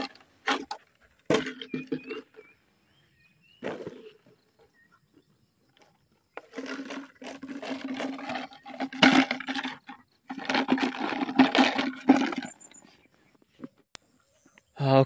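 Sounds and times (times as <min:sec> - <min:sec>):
puppy chewing plastic bottle: 0:06.4 - 0:12.8.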